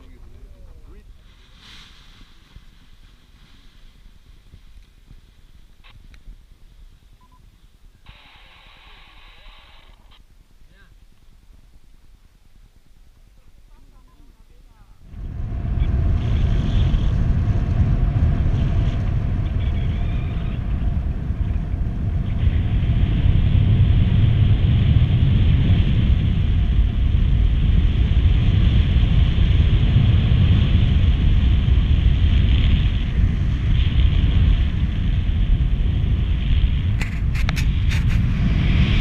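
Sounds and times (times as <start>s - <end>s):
wind buffeting microphone: 15.0s - 39.0s.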